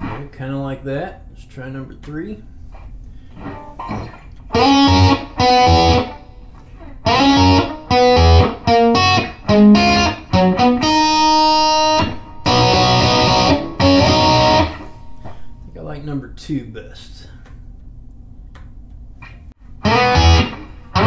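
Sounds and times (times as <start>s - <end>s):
electric guitar lead notes: 3.4s - 15.6s, 19.8s - 21.0s.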